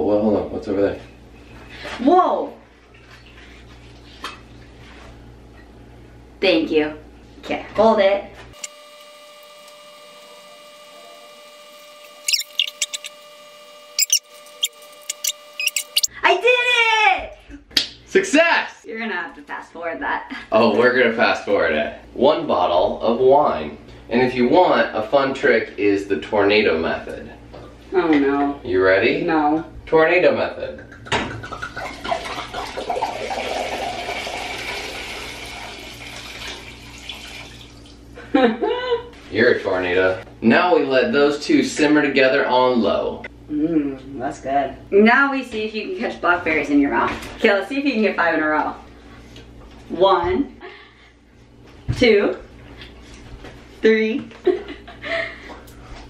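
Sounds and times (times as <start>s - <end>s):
cork squeaking in bottle neck: 12.3s - 13.2s, 14.0s - 16.1s
wine pouring into a saucepan: 31.8s - 38.0s.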